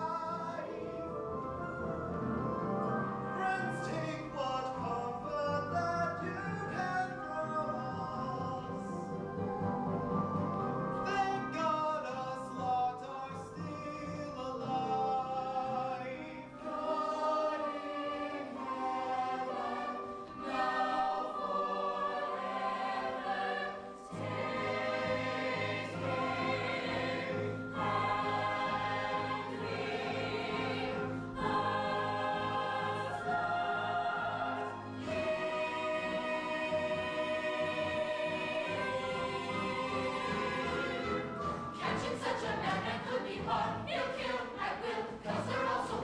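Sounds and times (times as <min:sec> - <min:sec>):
ensemble singing in chorus: 0:13.6 - 0:46.0.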